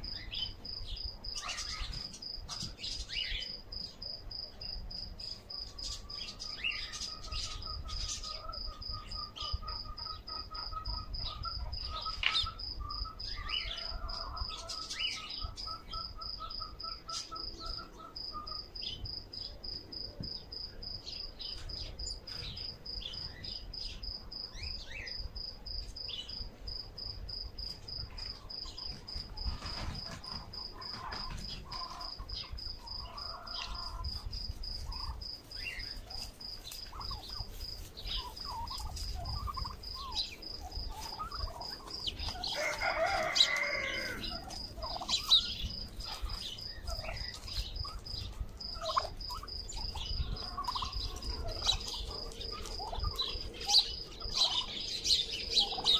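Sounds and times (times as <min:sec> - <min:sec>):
crickets chirping: 0:00.0 - 0:55.9
turkeys calling: 0:05.8 - 0:18.8, 0:28.3 - 0:55.9.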